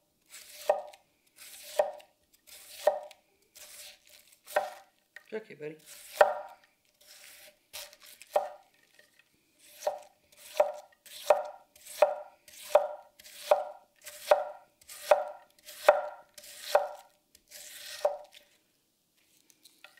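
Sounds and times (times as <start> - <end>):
knife slicing cabbage: 0.2 - 4.9, 5.8 - 9.0, 9.6 - 18.6.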